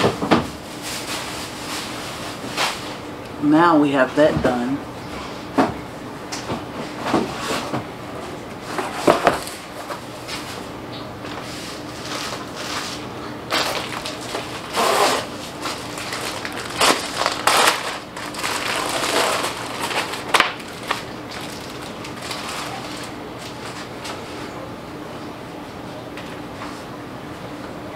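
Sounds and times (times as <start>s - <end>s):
plastic wrap box crinkling: 13.5s - 23.9s.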